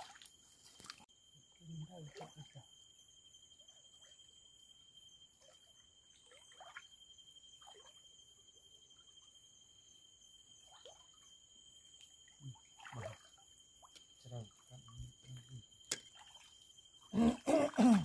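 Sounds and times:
water splashing and trickling: 0:00.0 - 0:01.1, 0:05.4 - 0:07.0, 0:07.6 - 0:08.0, 0:10.6 - 0:18.0
night insects buzzing: 0:00.0 - 0:18.0.

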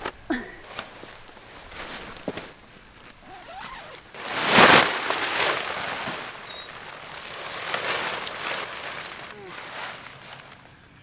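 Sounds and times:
rainfly swishing and flapping: 0:00.0 - 0:10.6
tent fabric rustling: 0:00.0 - 0:10.6.

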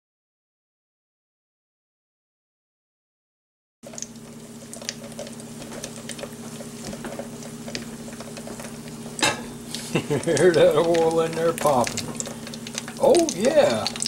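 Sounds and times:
oil sizzling and popping: 0:03.8 - 0:14.0
steady low hum: 0:03.9 - 0:14.0.

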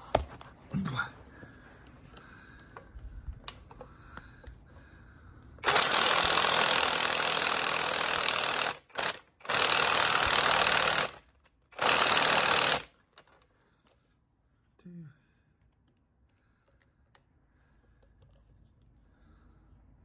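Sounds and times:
impact wrench hammering: 0:05.6 - 0:12.9.

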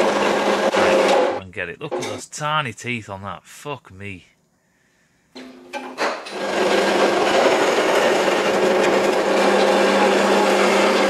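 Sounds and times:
bandsaw cutting steel: 0:00.0 - 0:01.4, 0:05.4 - 0:11.0.

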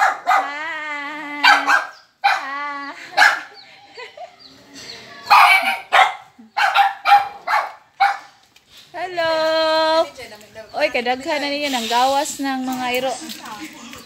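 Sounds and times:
small dogs yapping: 0:01.4 - 0:02.5, 0:05.2 - 0:08.4.

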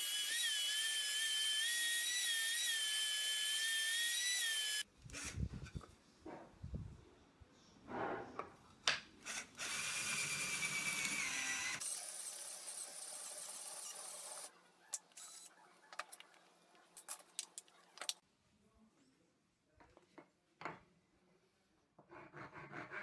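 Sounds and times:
cordless drill boring through wood: 0:00.0 - 0:05.4, 0:09.2 - 0:14.5.

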